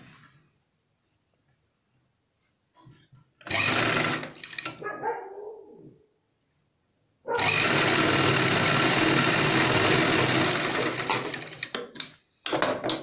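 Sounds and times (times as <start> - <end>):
sewing machine running: 3.4 - 4.7, 7.4 - 11.7.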